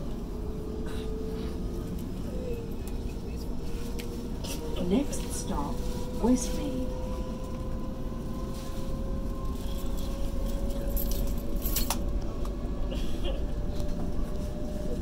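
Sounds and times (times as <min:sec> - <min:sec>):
traction motor whine: 0:00.0 - 0:14.9
train cabin rumble: 0:00.0 - 0:15.0
light clinks and rattles: 0:10.5 - 0:12.0.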